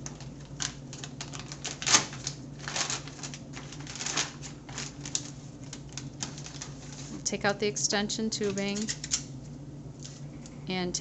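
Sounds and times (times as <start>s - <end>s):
plastic package crinkling: 0.0s - 7.3s, 8.4s - 9.3s.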